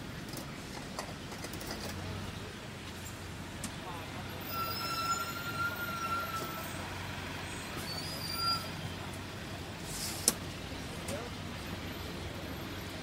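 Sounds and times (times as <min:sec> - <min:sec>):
traffic rumble: 0:00.0 - 0:13.0
high squeal: 0:04.3 - 0:08.9.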